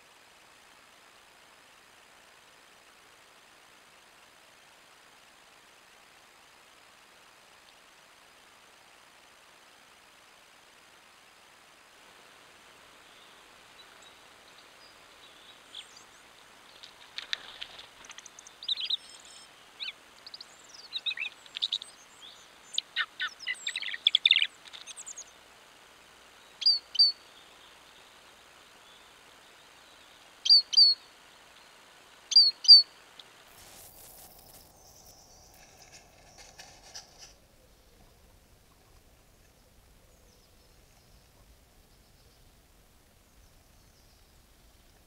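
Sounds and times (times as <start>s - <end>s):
songbirds chirping: 12.8s - 45.0s.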